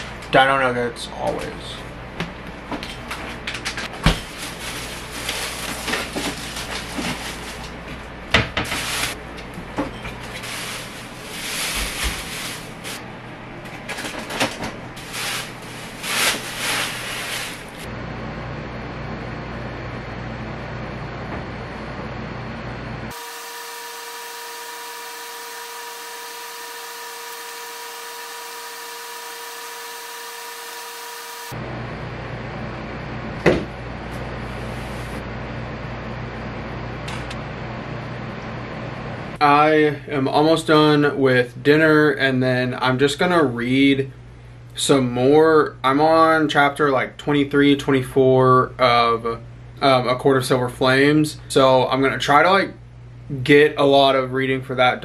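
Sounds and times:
fan-like hum: 0:00.0 - 0:55.0
plastic bags rustling: 0:03.4 - 0:13.0, 0:13.8 - 0:17.9.

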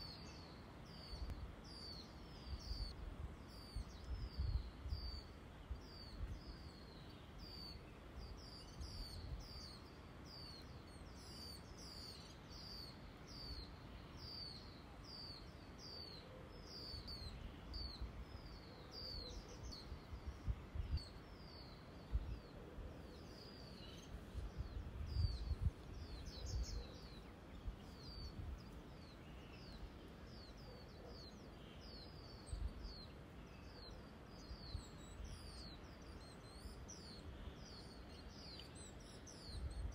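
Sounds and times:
small bird chirping: 0:00.0 - 0:39.9
wind buffeting microphone: 0:01.1 - 0:06.5, 0:19.2 - 0:22.5, 0:24.2 - 0:28.8.

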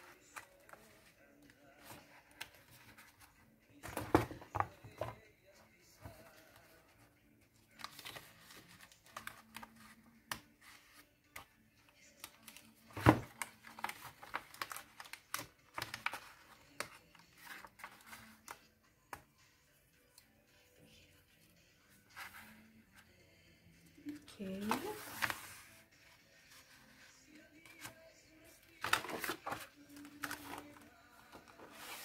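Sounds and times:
paper rustling and crinkling: 0:00.1 - 0:05.2, 0:07.7 - 0:11.5, 0:12.2 - 0:18.6, 0:24.7 - 0:25.8, 0:28.6 - 0:32.0.

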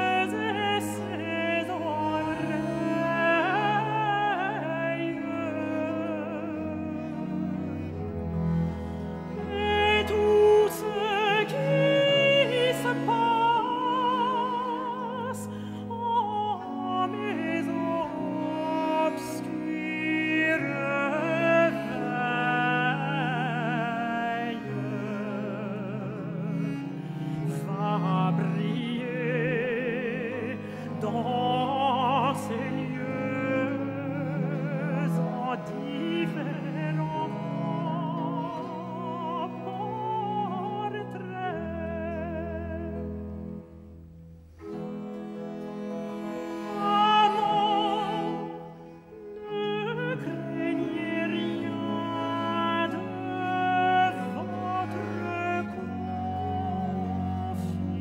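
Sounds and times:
woman singing with vibrato: 0:00.0 - 0:07.0, 0:09.4 - 0:26.5, 0:49.3 - 0:58.0
bowed strings: 0:00.0 - 0:58.0.

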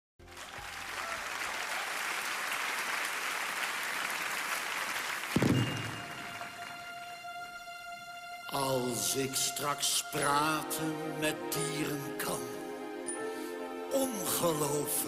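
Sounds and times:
audience applauding: 0:00.2 - 0:06.8.

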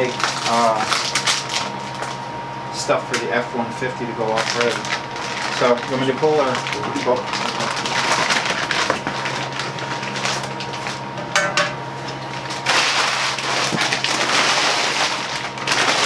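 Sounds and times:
plastic wrapping crinkling: 0:00.0 - 0:02.2, 0:04.3 - 0:11.0, 0:12.2 - 0:16.0.

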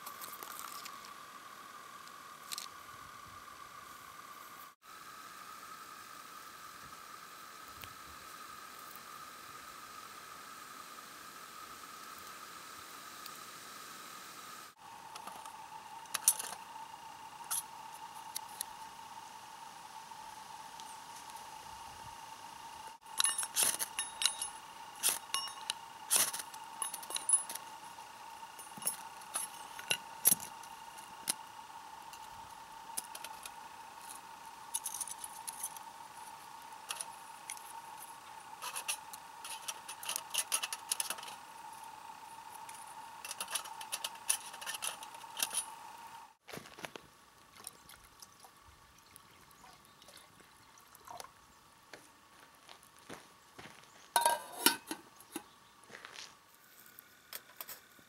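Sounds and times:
metal stove parts clinking: 0:16.1 - 0:16.6, 0:23.2 - 0:27.6, 0:28.6 - 0:30.5, 0:38.6 - 0:41.4, 0:43.2 - 0:45.7, 0:54.2 - 0:55.5.

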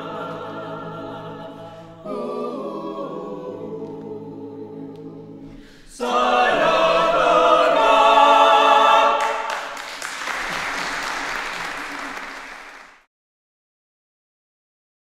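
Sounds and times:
a cappella choir singing: 0:00.0 - 0:09.9.

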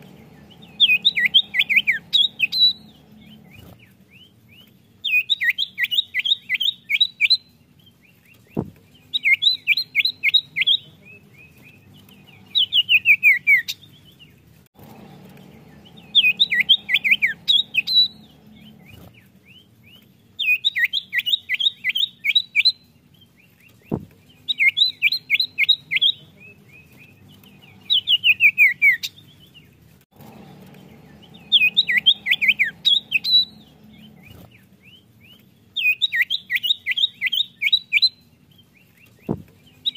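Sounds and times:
bird trilled chattering: 0:00.4 - 0:03.6, 0:15.4 - 0:19.0, 0:30.8 - 0:34.4
soft knock: 0:08.6 - 0:08.8, 0:23.9 - 0:24.2.

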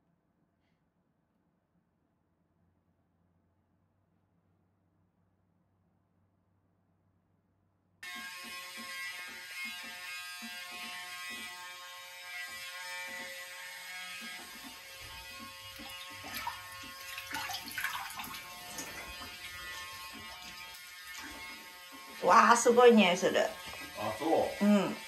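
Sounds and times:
electric motor humming: 0:08.0 - 0:25.0.

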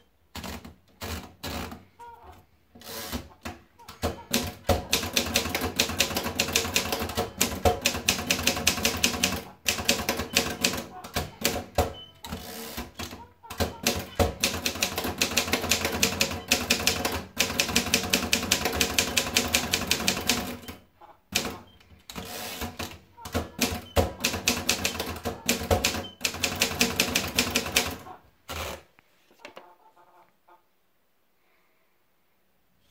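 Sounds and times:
typewriter carriage return: 0:04.0 - 0:20.8, 0:21.4 - 0:28.8.

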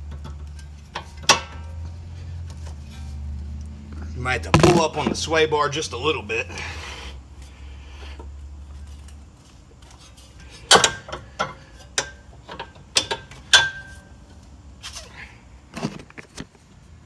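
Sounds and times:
metal clicks and clanks: 0:09.8 - 0:14.0.

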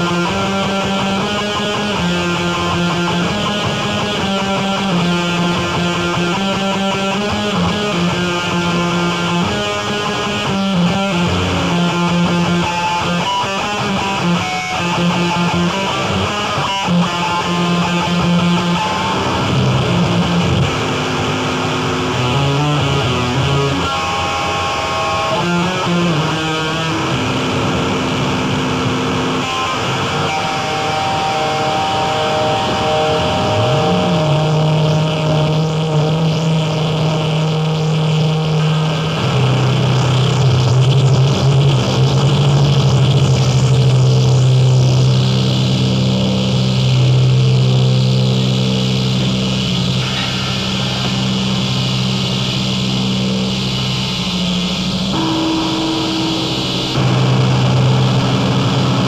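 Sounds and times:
wall of distorted noise: 0:00.0 - 0:59.0
low pitched notes: 0:25.3 - 0:59.0.

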